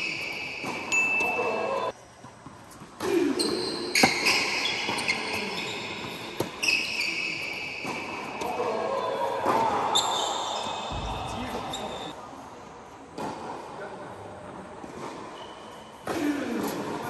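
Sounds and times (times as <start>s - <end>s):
racket hitting tennis ball: 0.0s - 1.6s, 2.4s - 6.6s, 7.8s - 8.7s.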